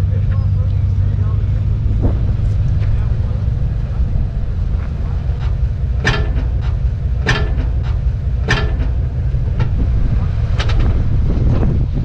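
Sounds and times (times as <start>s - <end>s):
engine rumble: 0.0s - 12.0s
sharp ringing clacks: 5.3s - 9.7s.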